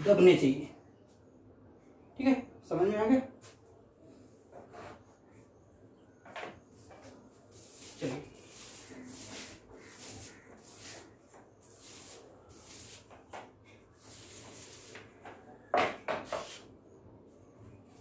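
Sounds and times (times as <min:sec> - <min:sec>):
paint roller swishing on wall: 0:06.8 - 0:15.5.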